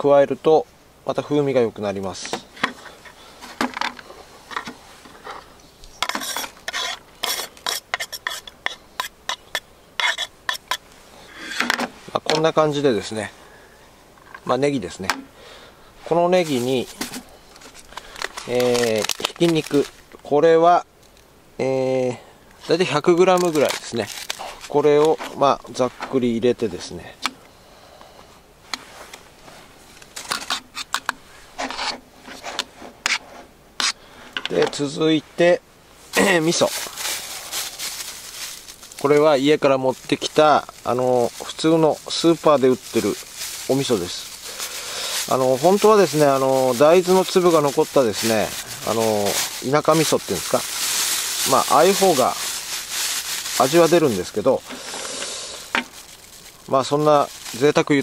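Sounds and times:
knife scraping cutting board: 6.0 - 10.8, 30.3 - 34.0.

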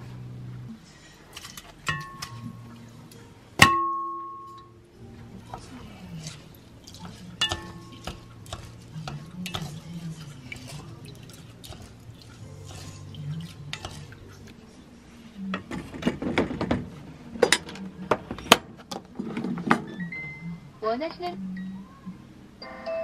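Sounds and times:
pot clattering: 1.4 - 2.8, 3.6 - 4.7, 5.4 - 14.6
wooden spoon stirring rice in pot: 5.2 - 16.0.

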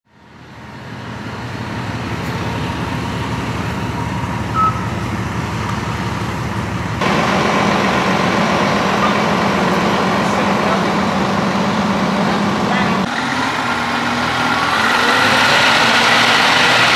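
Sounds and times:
fire truck engine running: 0.0 - 16.9
short high beep: 4.5 - 5.0.

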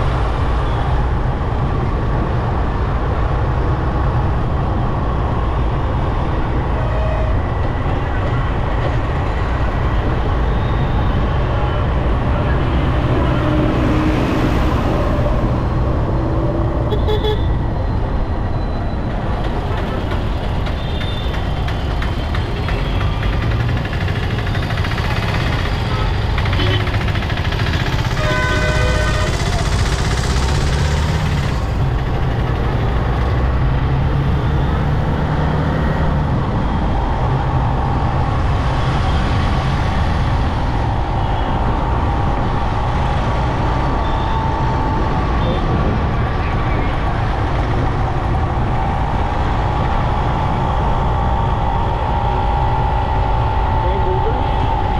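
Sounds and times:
motorbike road noise: 0.0 - 54.9
traffic engines: 0.0 - 54.9
vehicle horn honking: 16.9 - 17.5, 28.1 - 29.6.

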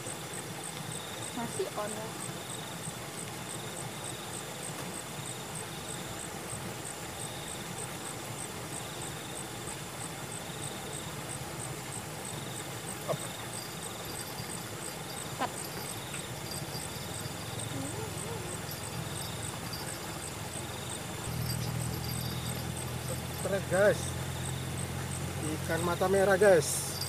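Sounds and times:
insect high chirp: 0.0 - 27.0
insect buzzing trill: 11.8 - 27.0.

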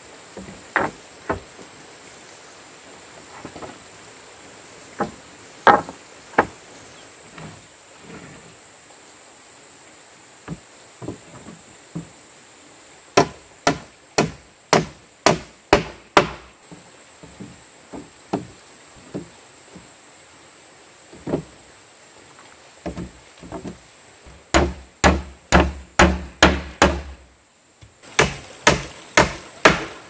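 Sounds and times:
knocks of boards being handled: 0.4 - 1.7, 5.0 - 6.6, 10.5 - 12.1, 13.2 - 19.9, 21.2 - 21.6, 22.8 - 27.2, 27.8 - 30.0
hammer nailing wooden planks: 13.2 - 16.5, 24.5 - 27.2, 28.2 - 30.0.

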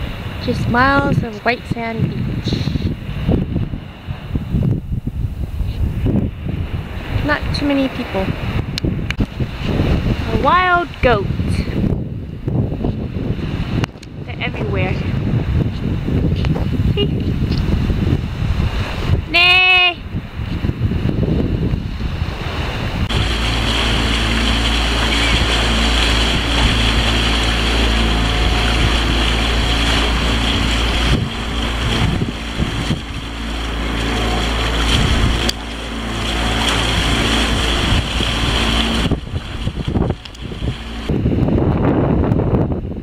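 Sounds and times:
boat engine running: 0.0 - 43.0
wind buffeting microphone: 0.0 - 43.0.

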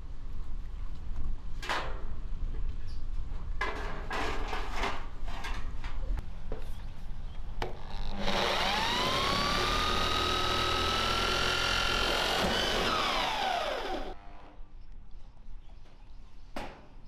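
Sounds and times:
electric drill driving screw: 7.9 - 14.2.

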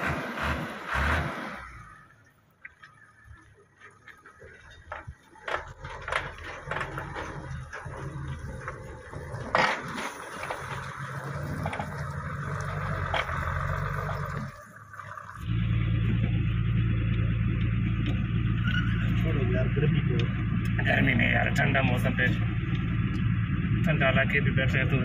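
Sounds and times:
engine running: 0.0 - 25.0
knocks and scraping: 3.6 - 23.3.

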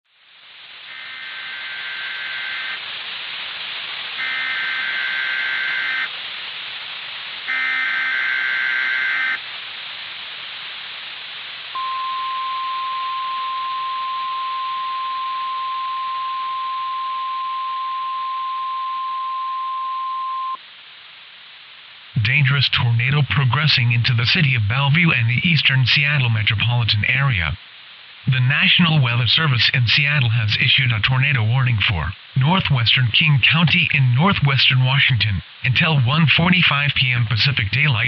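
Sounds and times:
radio hiss: 0.1 - 38.0
single-pitch alarm tone: 11.8 - 20.6.

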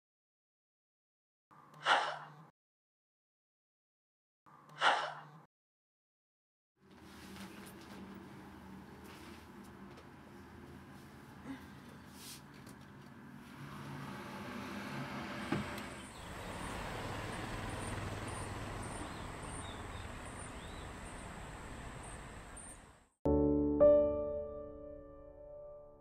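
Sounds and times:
city traffic noise: 12.1 - 23.1
soft piano music: 23.3 - 26.0.

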